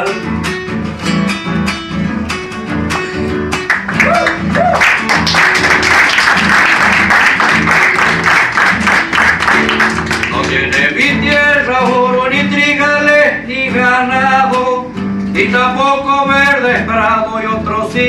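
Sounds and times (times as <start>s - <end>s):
acoustic guitar music: 0.0s - 18.0s.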